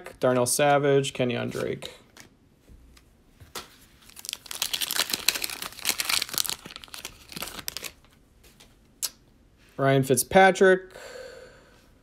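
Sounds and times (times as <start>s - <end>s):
wrapper tearing and crinkling: 4.0s - 8.1s.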